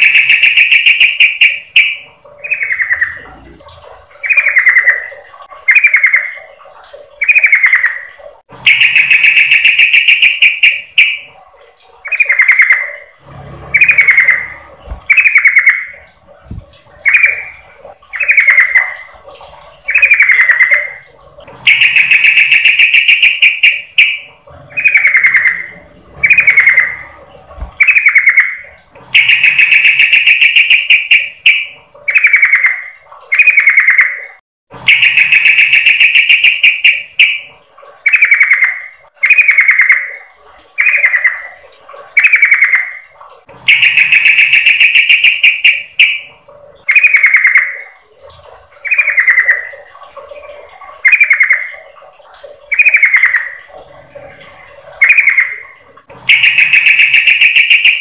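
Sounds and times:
bird chattering: 0.0s - 3.6s, 13.7s - 16.1s, 21.6s - 27.1s, 29.2s - 34.2s, 56.3s - 58.0s
bird chirping: 0.0s - 3.6s, 4.2s - 6.5s, 7.2s - 11.3s, 12.0s - 19.2s, 19.8s - 34.2s, 34.9s - 37.5s, 43.7s - 46.3s, 46.9s - 47.8s, 48.8s - 49.8s, 52.7s - 53.6s, 55.0s - 55.7s, 56.3s - 58.0s.

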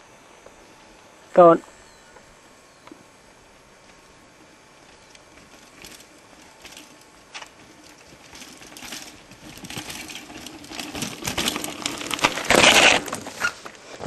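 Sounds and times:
mountain bike rattling over rocks: 4.8s - 14.0s.

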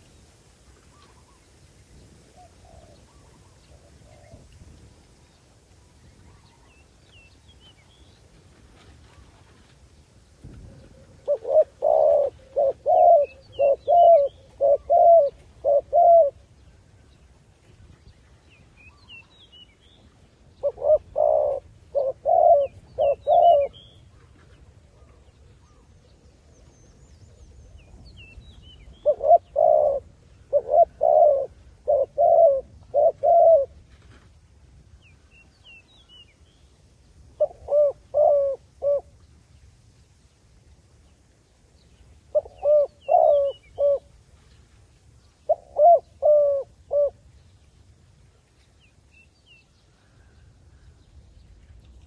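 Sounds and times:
dove cooing: 2.3s - 4.5s, 10.5s - 16.5s, 20.6s - 28.0s, 28.8s - 34.2s, 37.4s - 39.2s, 42.3s - 44.2s, 45.5s - 47.2s
small birds chirping: 10.8s - 17.3s.

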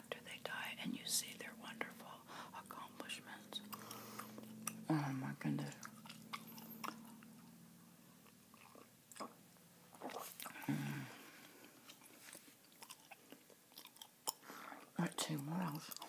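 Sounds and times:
chewing gum: 3.5s - 4.9s, 5.6s - 7.6s, 8.2s - 10.8s, 11.4s - 16.0s
gum clicks and snaps: 3.6s - 4.9s, 12.7s - 14.4s.

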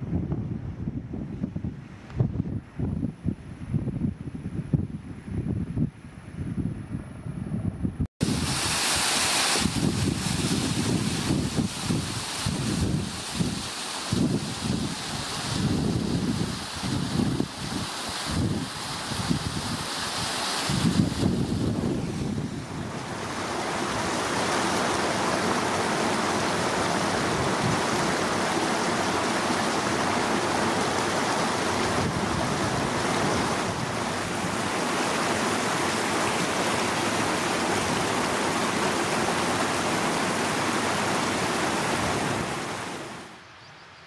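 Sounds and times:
stream rushing over stones: 8.2s - 43.4s.

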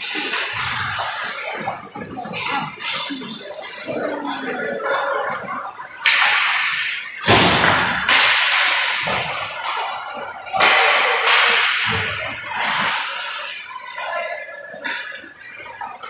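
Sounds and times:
hockey pucks and sticks cracking: 6.0s - 14.2s.

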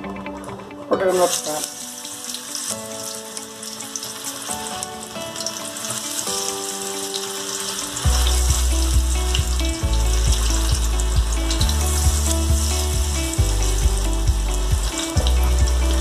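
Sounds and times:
background music with held notes: 0.0s - 16.0s
food deep-frying in oil: 1.3s - 15.3s
loud deep rumble: 8.1s - 16.0s.

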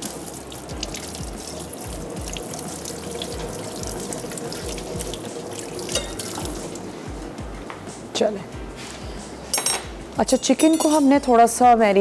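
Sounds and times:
tap running into a sink: 0.0s - 6.8s.

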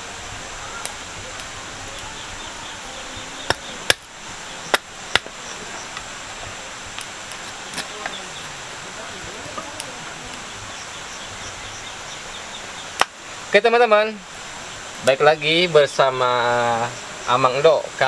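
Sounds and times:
night insects chirring: 0.6s - 18.0s
machete chopping wood: 4.7s - 5.3s.

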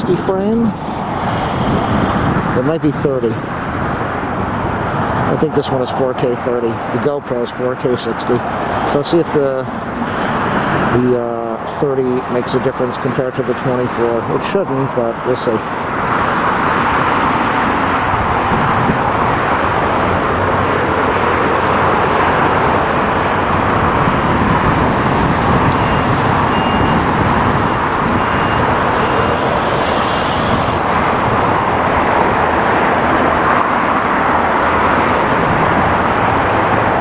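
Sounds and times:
jet engines roaring: 0.0s - 37.0s
road traffic: 0.0s - 37.0s
faint beeping tone: 25.7s - 30.3s.

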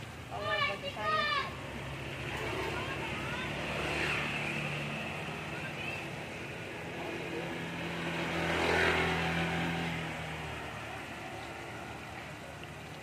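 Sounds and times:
vehicle engine passing by: 1.5s - 13.0s.

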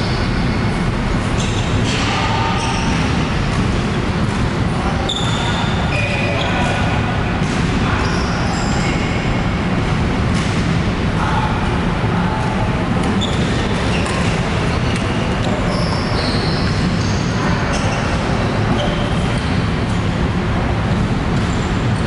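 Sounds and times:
low hall rumble: 0.0s - 22.0s
shoes squeaking on sports floor: 5.0s - 6.9s, 13.0s - 19.7s.

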